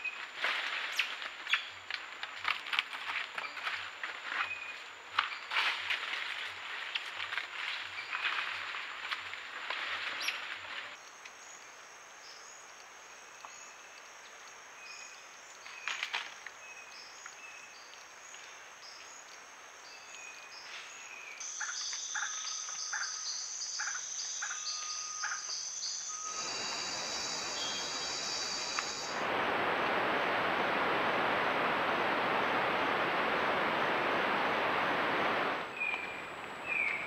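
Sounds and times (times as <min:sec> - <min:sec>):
insects droning and trilling: 0:00.0 - 0:37.0
bird calls: 0:21.5 - 0:29.2
chirps: 0:21.6 - 0:29.2.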